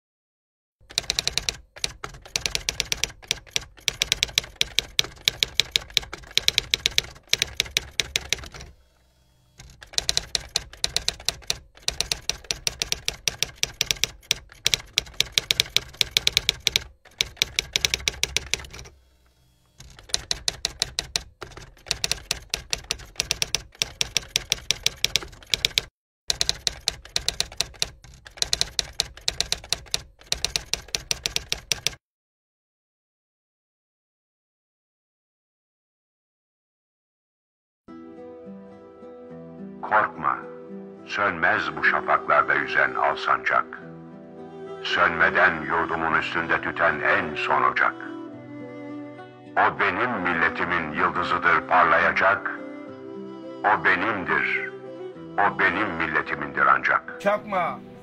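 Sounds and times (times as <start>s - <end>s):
typewriter keys clacking: 0.8s - 8.7s, 9.6s - 18.9s, 19.8s - 32.0s.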